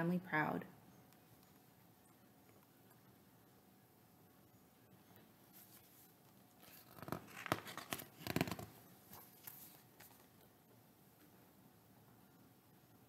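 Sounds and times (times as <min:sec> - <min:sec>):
book page turning: 0:05.5 - 0:10.4.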